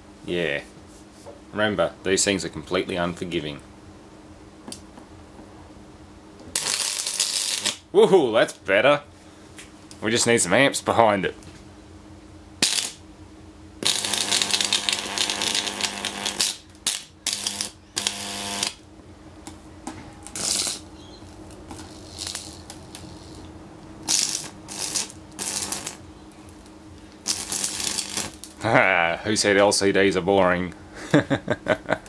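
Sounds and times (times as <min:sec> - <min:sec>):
steady low hum: 0:00.0 - 0:32.0
electric arc crackling and buzzing: 0:06.4 - 0:08.6, 0:12.6 - 0:13.2, 0:13.8 - 0:30.6.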